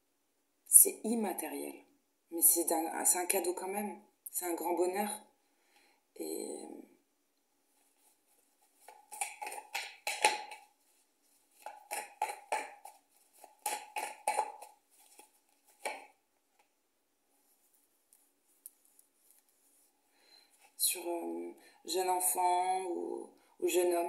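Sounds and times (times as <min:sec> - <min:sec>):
cards being shuffled: 0:07.8 - 0:16.7.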